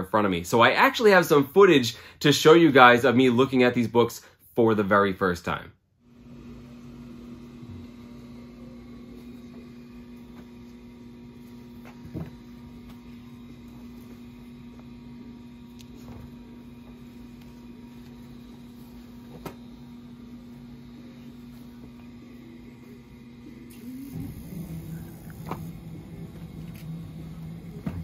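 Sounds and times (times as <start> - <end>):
steady electrical hum: 0.0 - 28.0.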